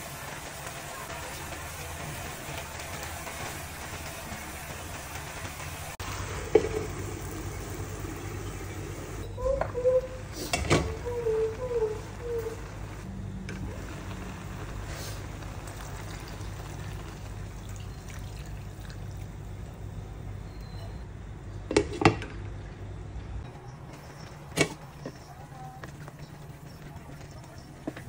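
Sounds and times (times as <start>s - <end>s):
low hum: 0.8s - 27.7s
sauce pouring into wok: 13.7s - 19.8s.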